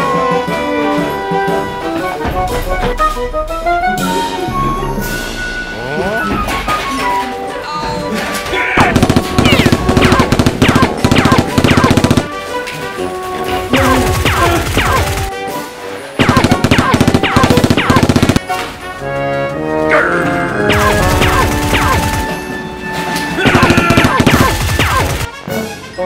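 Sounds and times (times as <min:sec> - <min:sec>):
background music: 0:00.0 - 0:26.0
toy blaster shooting: 0:08.8 - 0:12.3, 0:16.2 - 0:18.4, 0:20.7 - 0:22.3
automatic gunfire sound effect: 0:08.8 - 0:12.4, 0:13.8 - 0:15.3, 0:16.2 - 0:18.5, 0:20.7 - 0:22.4, 0:23.4 - 0:25.3.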